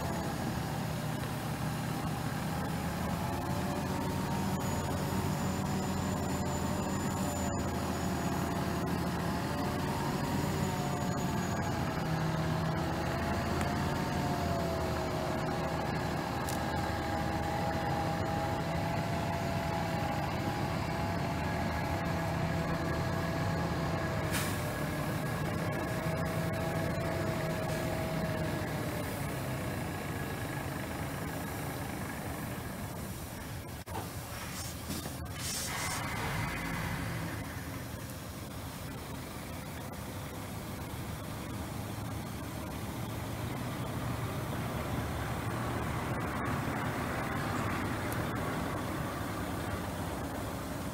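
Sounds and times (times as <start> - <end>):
wavering whine: 0.0 - 24.0
truck diesel engine running: 0.0 - 50.9
hiss of air: 24.3 - 24.8, 34.1 - 37.8.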